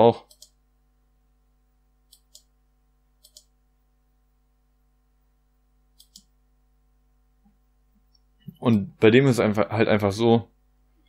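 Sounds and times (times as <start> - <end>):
faint computer mouse clicks: 0.3 - 0.6, 2.1 - 2.5, 3.2 - 3.5, 6.0 - 6.3.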